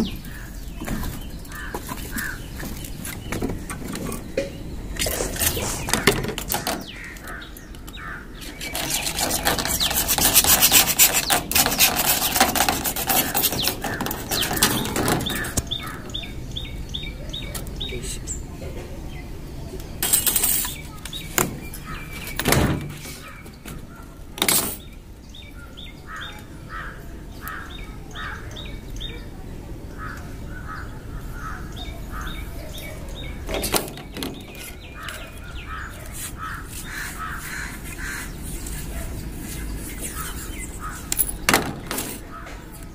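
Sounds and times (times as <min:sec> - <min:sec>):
bird chirping: 0:00.0 - 0:42.9
fast rasping scrape: 0:05.0 - 0:06.9, 0:08.4 - 0:16.0, 0:33.5 - 0:42.3.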